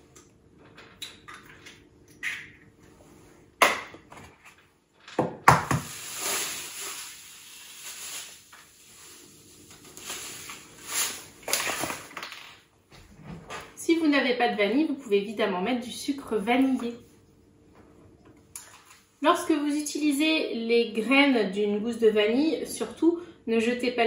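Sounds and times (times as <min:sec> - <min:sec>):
sugar pouring into a bowl: 0:05.8 - 0:11.3.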